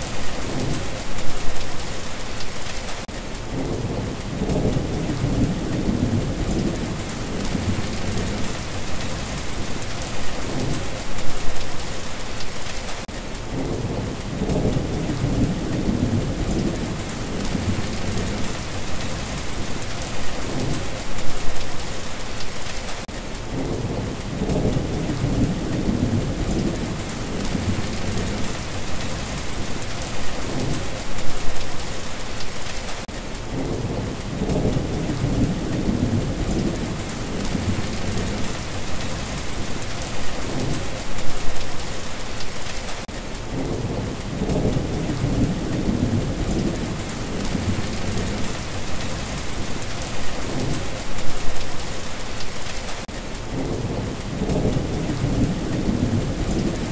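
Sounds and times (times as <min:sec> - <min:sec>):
steady rain: 0:00.0 - 0:56.9
thunder rumbling: 0:03.5 - 0:11.7, 0:13.5 - 0:21.6, 0:23.5 - 0:31.6, 0:33.5 - 0:41.8, 0:43.5 - 0:51.9, 0:53.5 - 0:56.9.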